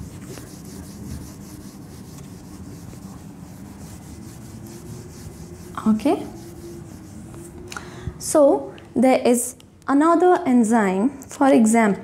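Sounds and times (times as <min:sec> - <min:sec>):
whiteboard being wiped: 0:00.0 - 0:07.6.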